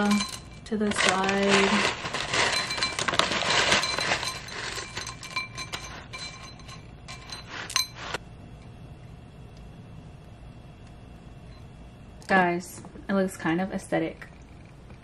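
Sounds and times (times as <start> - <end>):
granola rattling into a bowl: 0.0 - 8.0.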